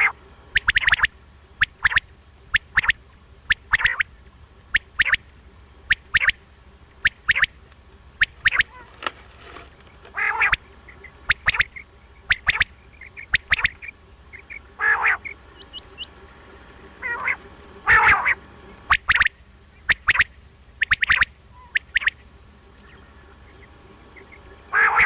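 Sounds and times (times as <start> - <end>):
quail harsh rasping calls: 0.0 - 6.4, 7.0 - 22.2, 22.9 - 25.0
quail calling sharp notes: 0.0 - 22.2, 22.8 - 25.0.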